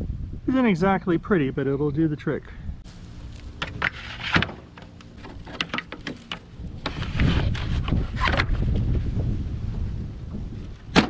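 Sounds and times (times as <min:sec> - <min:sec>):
low rumbling noise: 0:02.5 - 0:11.0.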